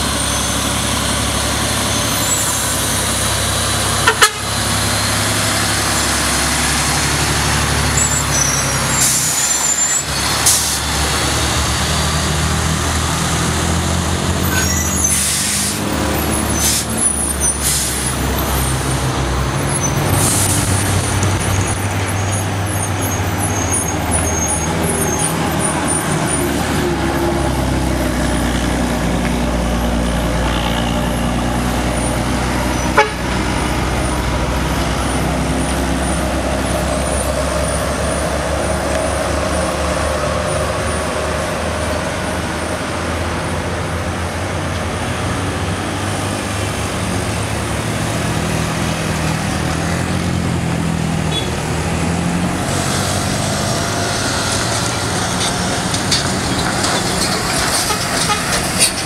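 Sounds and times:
diesel trucks passing: 0:00.0 - 0:59.0
car horn toot: 0:04.0 - 0:04.5, 0:32.9 - 0:33.3, 0:51.3 - 0:51.6.

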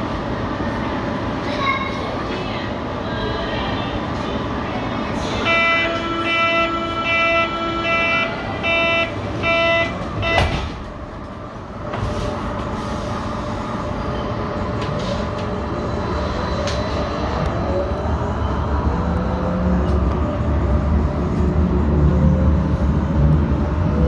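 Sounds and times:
train rumble: 0:00.0 - 0:24.0
train doors knocking shut: 0:09.6 - 0:11.0.

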